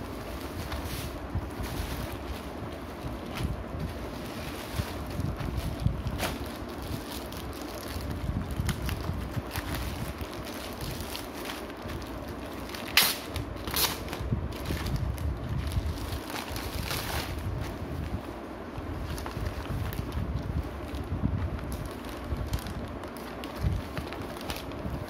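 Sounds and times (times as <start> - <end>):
plastic bags rustling and crinkling: 0.0 - 25.0
microphone handling rumble: 0.4 - 6.7.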